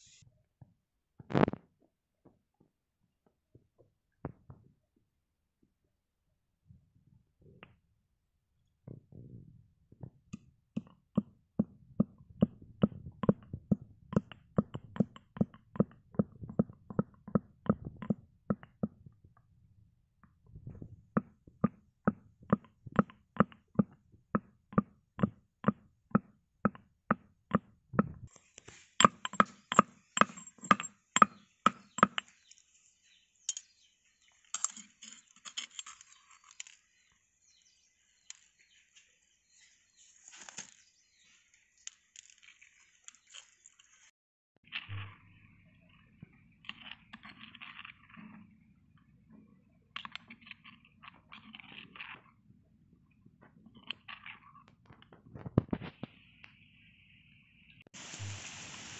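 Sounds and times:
stone pestle pounding in mortar: 0:10.8 - 0:19.0, 0:29.0 - 0:32.2.

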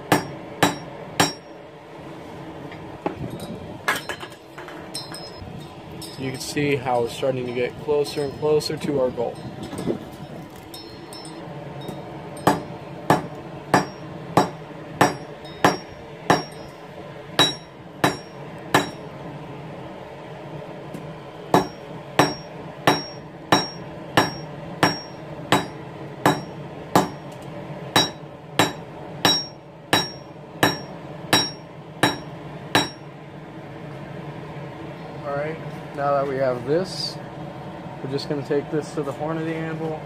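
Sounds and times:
hammer striking steel on anvil: 0:00.0 - 0:01.6, 0:03.9 - 0:05.4, 0:10.8 - 0:16.8, 0:17.4 - 0:19.1, 0:21.5 - 0:27.3, 0:28.0 - 0:33.0.

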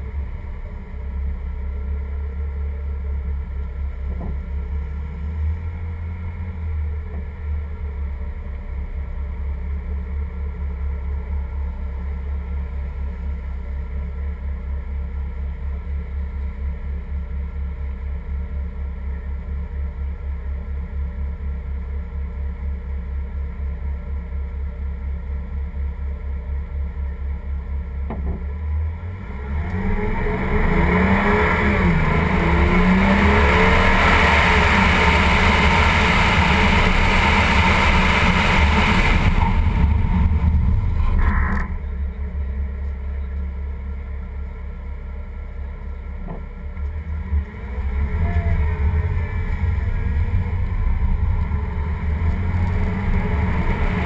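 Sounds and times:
car engine idling and accelerating: 0:00.0 - 0:54.0
wind and tyre noise: 0:28.4 - 0:54.0.

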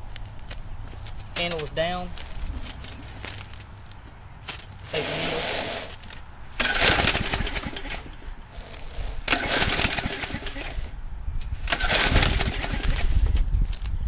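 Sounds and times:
lawn mower engine cranking: 0:04.5 - 0:10.9, 0:11.6 - 0:13.4.

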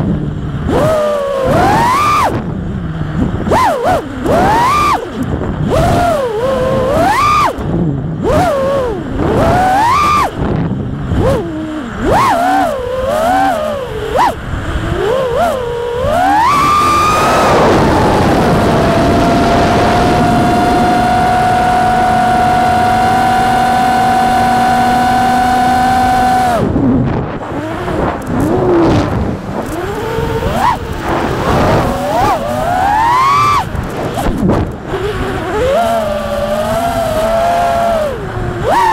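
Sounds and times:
quadcopter motors whining: 0:00.0 - 0:38.9.

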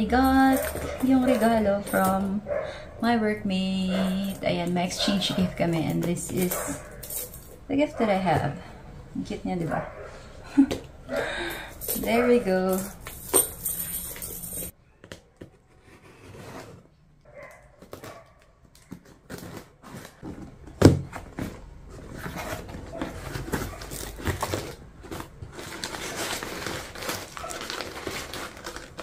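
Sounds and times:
packing paper crinkling: 0:21.3 - 0:29.0.

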